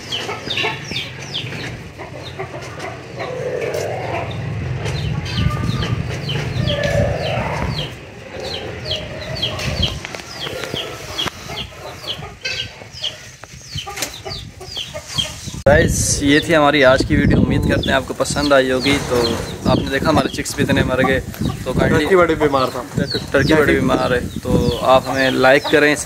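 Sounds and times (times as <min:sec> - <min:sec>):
poultry clucking: 0:00.0 - 0:26.0
low rumble: 0:03.0 - 0:11.3
high falling chirps: 0:03.1 - 0:12.6.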